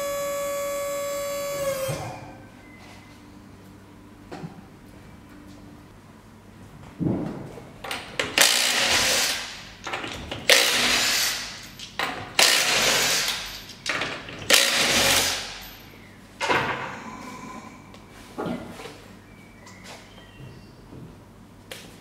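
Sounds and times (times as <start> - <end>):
impact wrench bursts: 8.4 - 9.7, 10.5 - 11.7, 12.4 - 13.6, 14.5 - 15.6.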